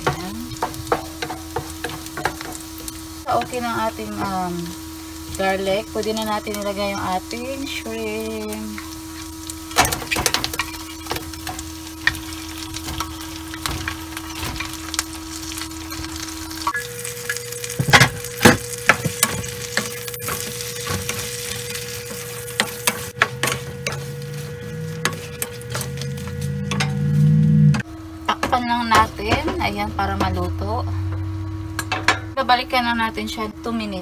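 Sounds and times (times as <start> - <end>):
shrimp sizzling in frying pan: 0.0 - 27.4
steady hum: 0.0 - 34.0
wooden spatula scraping pan: 19.8 - 27.4.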